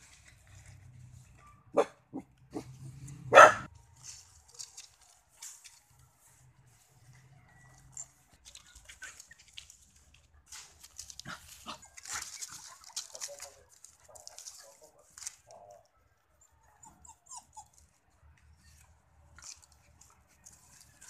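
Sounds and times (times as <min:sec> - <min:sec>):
dog barking: 0:01.4 - 0:02.7, 0:03.3 - 0:03.7
dog yips: 0:16.7 - 0:17.8.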